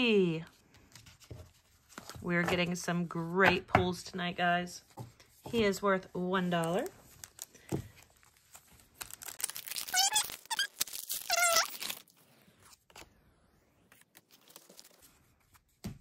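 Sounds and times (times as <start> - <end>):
foil wrapper tearing and crinkling: 8.8 - 12.2.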